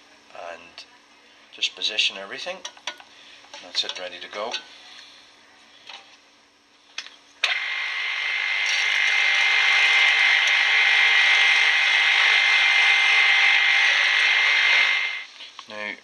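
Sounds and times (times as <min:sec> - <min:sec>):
pillar drill drilling steel: 0:07.4 - 0:15.3.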